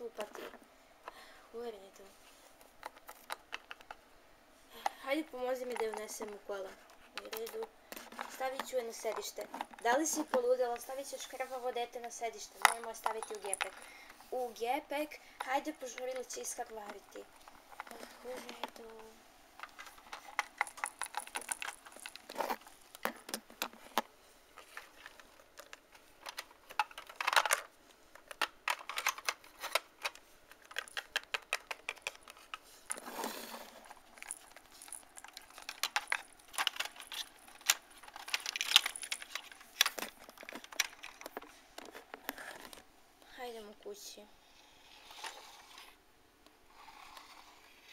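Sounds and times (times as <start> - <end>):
plastic toys clicking and rattling: 2.8 - 4.0, 4.8 - 14.2, 15.4 - 42.8
plastic toy scraping: 28.8 - 42.8, 44.4 - 46.0, 46.7 - 47.9.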